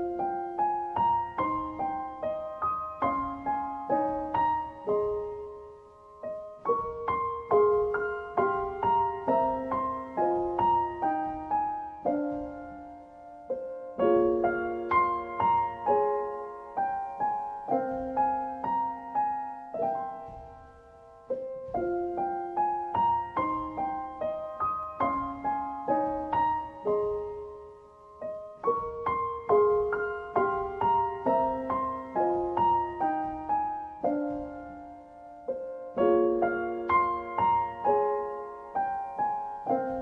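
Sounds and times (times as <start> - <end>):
soft solo piano: 0.0 - 40.0.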